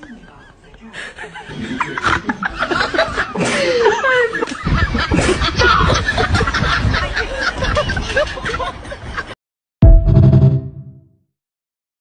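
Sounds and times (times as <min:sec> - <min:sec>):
laughter and giggling: 0:00.0 - 0:09.4.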